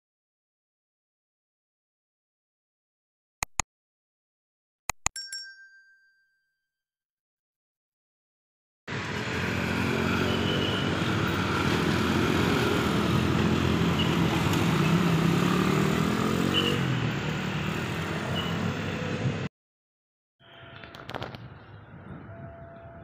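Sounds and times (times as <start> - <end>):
motorcycle-like engine running: 8.9 - 16.7.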